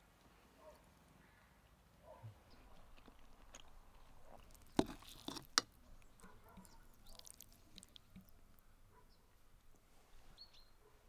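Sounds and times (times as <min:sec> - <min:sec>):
soft mouth noises: 0:02.2 - 0:08.7
close chewing: 0:02.3 - 0:09.8.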